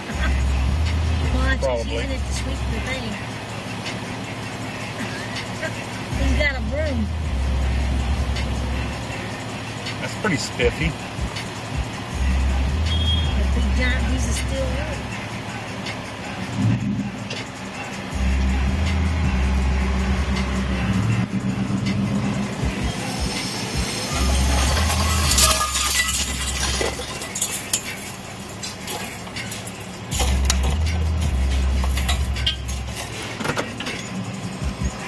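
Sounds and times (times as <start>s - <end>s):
low engine rumble: 0.0s - 35.0s
scrap metal clanking: 23.4s - 34.2s.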